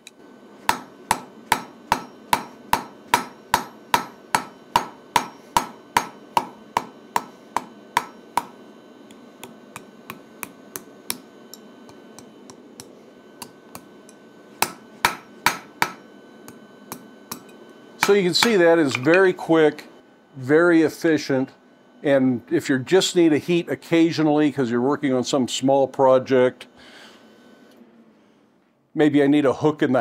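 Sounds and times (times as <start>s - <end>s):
hammer striking steel on anvil: 0.0s - 8.6s, 9.4s - 19.4s.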